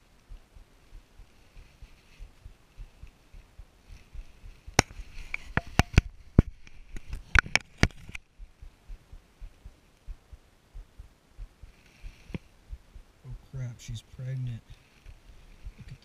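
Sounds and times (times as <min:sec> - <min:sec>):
faint low thumps: 0:00.0 - 0:16.0
sharp clicks and knocks: 0:04.6 - 0:09.6.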